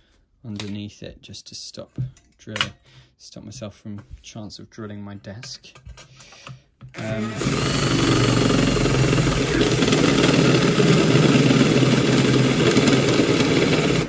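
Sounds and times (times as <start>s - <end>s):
cordless drill cutting metal: 7.0s - 14.0s.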